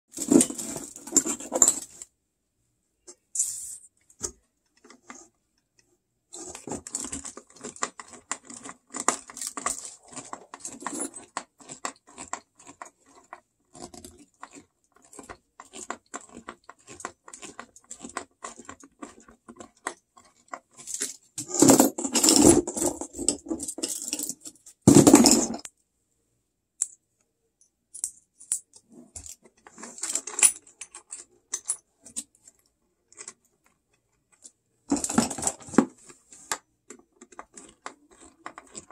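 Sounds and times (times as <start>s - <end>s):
metal tools clinking and rattling: 0.2s - 2.0s.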